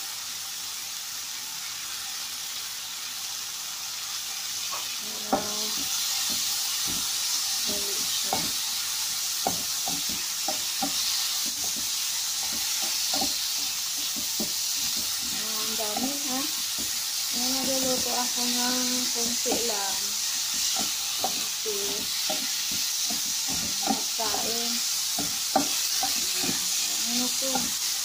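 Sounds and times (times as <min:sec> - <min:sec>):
food sizzling in a pan: 0:00.0 - 0:28.0
utensil scraping a pan: 0:09.4 - 0:28.0.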